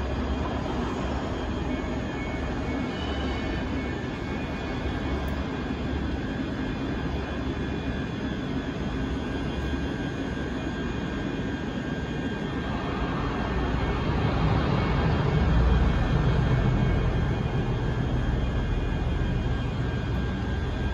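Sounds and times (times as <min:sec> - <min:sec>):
diesel engine low rumble: 0:12.6 - 0:20.9.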